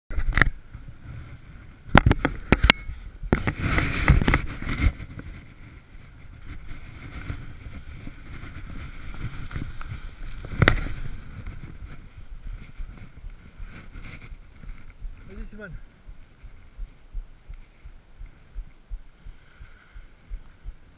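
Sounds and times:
skis scraping over snow: 0.7 - 2.5, 3.4 - 17.0.

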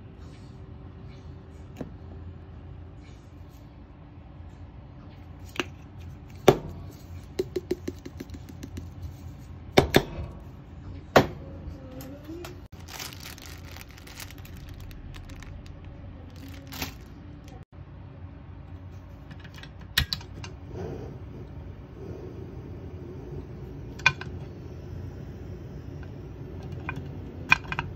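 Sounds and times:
steady low hum: 0.0 - 27.9
plastic bag rustling: 12.7 - 17.6.

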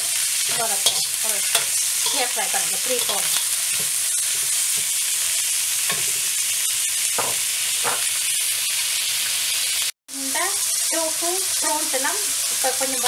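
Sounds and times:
metal spoon scraping a wok: 0.0 - 5.0, 5.8 - 6.6
food sizzling in hot oil: 0.0 - 13.0.

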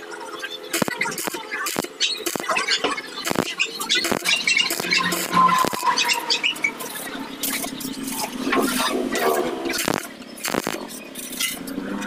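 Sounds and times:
metal grinding and scraping: 3.2 - 12.0.

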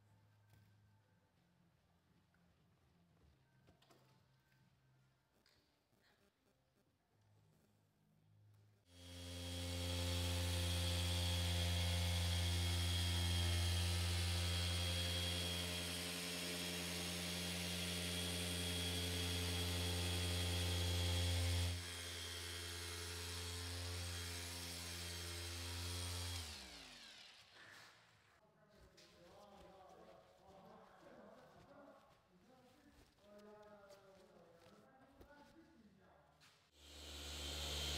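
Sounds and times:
polisher motor hum with whine: 9.0 - 28.0, 36.8 - 37.9.

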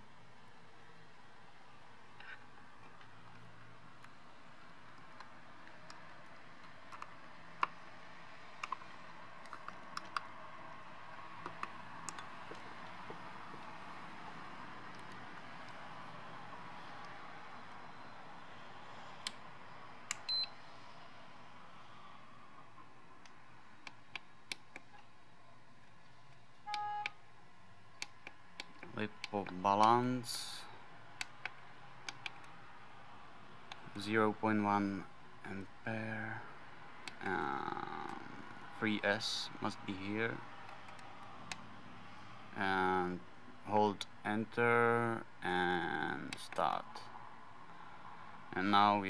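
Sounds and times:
charger buzzer beep: 26.7 - 27.1.

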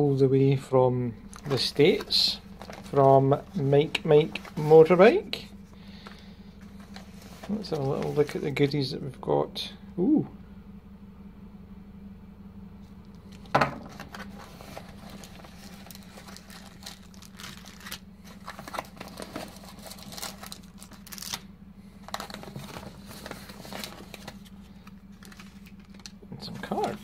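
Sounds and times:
paper crinkling: 1.3 - 5.0, 6.0 - 8.6, 13.3 - 21.4, 22.0 - 27.0
knock on desk: 13.5 - 13.9.

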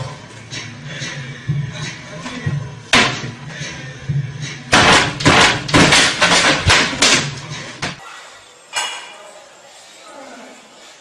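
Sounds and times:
wooden bar rig banging: 4.7 - 8.0.

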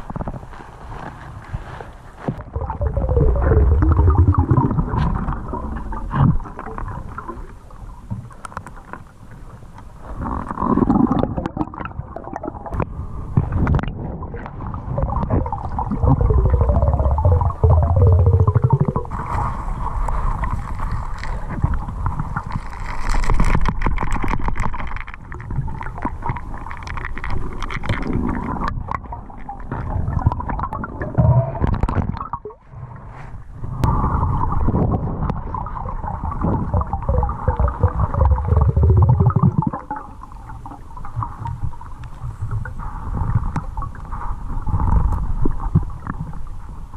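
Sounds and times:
muffled underwater rumbling: 0.0 - 46.9
underwater clicks and knocks: 20.4 - 32.5.

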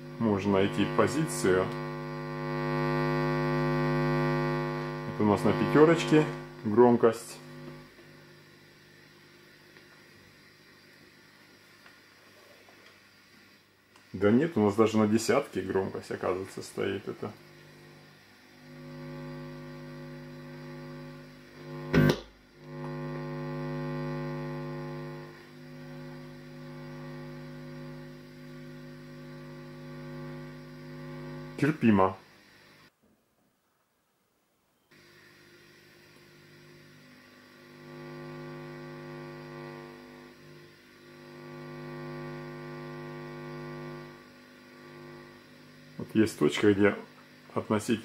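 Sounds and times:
mains hum from loudspeakers: 0.0 - 8.0
mains hum through speakers: 0.0 - 48.0.

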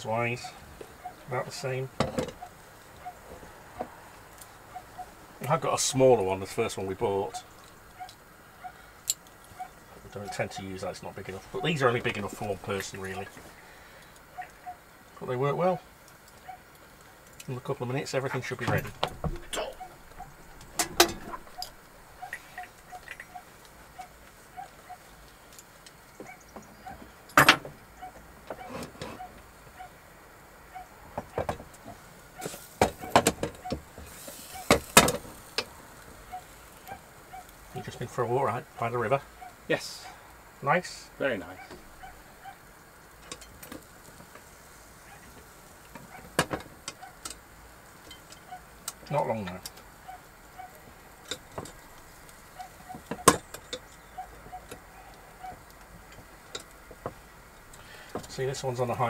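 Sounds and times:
metal pans clunking and clattering: 20.8 - 21.5.

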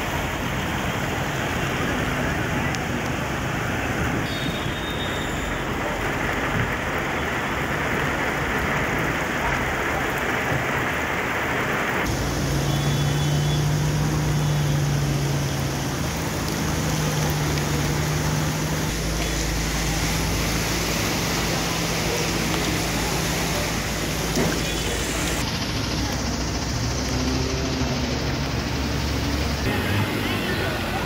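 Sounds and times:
steady rain: 0.0 - 31.0
vehicle engines humming: 0.0 - 31.0.

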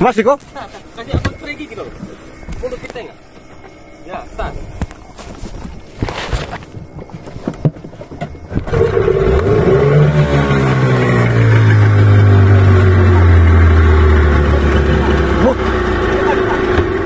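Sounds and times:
boat engine running: 0.7 - 17.0.

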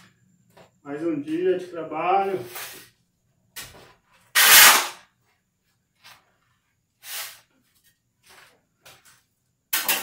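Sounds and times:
shovel scraping sand on concrete: 2.3 - 3.0, 4.3 - 5.0, 7.0 - 7.6.

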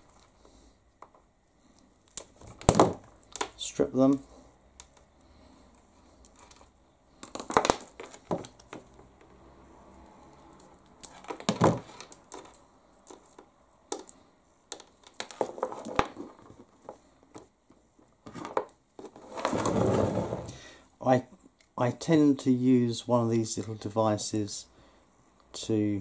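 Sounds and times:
rustling wires and parts: 0.0 - 9.4, 10.2 - 20.6.

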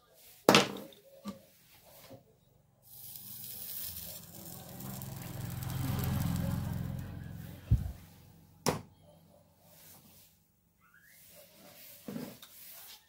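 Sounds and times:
soldering iron sizzling: 2.8 - 8.2
low hum: 3.4 - 8.6.

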